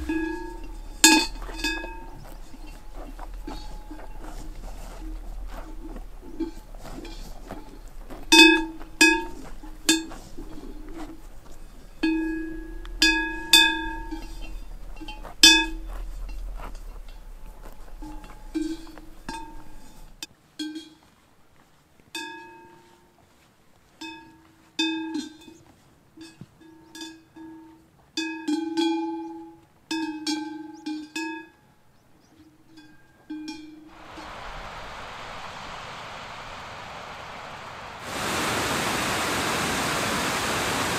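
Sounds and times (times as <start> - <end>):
cowbells clanking: 0.0 - 21.2, 22.1 - 23.2, 23.9 - 33.9.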